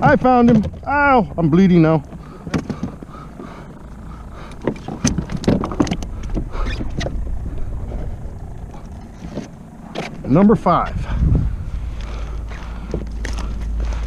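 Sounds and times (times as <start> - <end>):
steady low rumble: 0.0 - 14.0
gear knocking on plastic kayak: 1.8 - 8.1.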